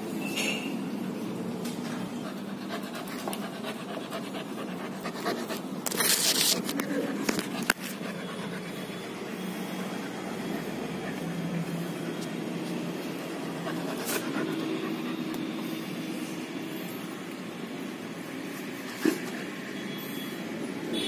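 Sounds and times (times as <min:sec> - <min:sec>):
puppy panting: 0:01.9 - 0:16.0.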